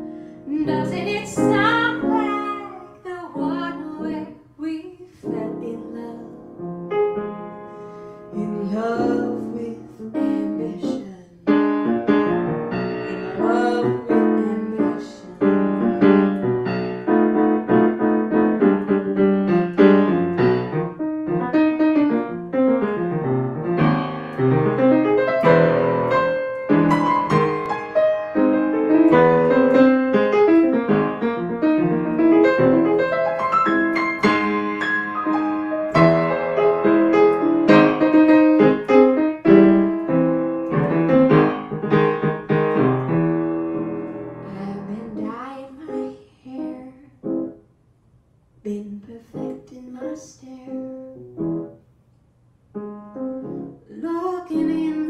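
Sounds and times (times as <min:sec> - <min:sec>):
grand piano: 0:00.0 - 0:47.8, 0:48.6 - 0:51.9, 0:52.7 - 0:55.0.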